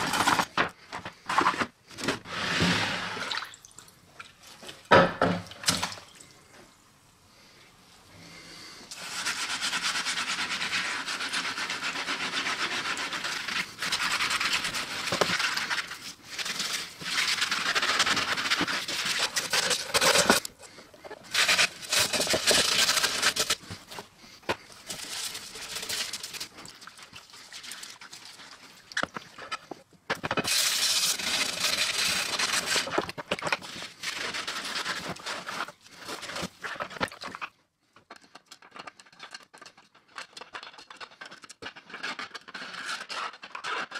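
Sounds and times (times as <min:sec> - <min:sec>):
scouring pad scratching metal: 0:08.9 - 0:24.0, 0:30.5 - 0:33.0.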